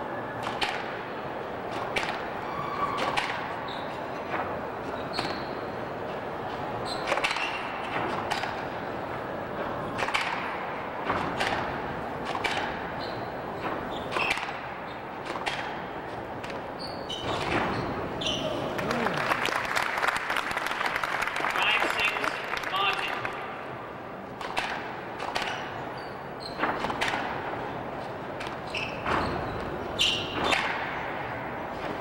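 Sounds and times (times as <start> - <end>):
shoe squeaks on court floor: 5.0 - 5.6, 13.0 - 14.4, 16.8 - 18.6, 25.5 - 26.6, 28.6 - 30.6
racquets striking ball: 9.8 - 18.4, 24.3 - 25.8, 26.5 - 27.7, 28.4 - 32.0
ball hitting walls: 9.9 - 18.4, 24.4 - 25.8, 26.5 - 27.6, 28.4 - 31.2.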